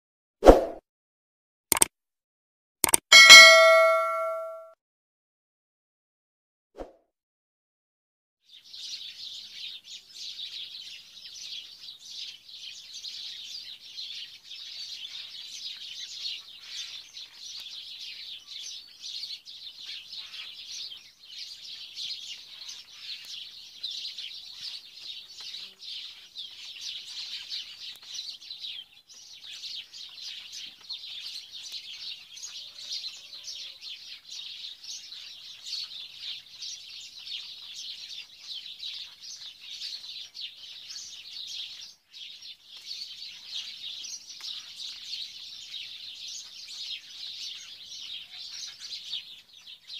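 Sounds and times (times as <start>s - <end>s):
birds chirping in chorus: 8.5s - 49.9s.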